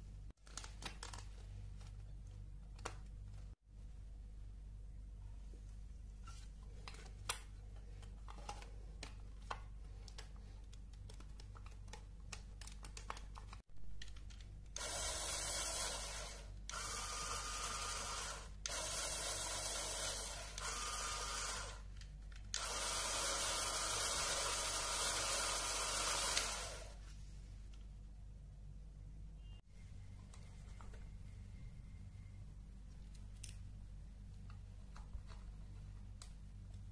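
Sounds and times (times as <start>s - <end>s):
electric motors whirring gears: 14.8s - 21.8s, 22.5s - 27.0s.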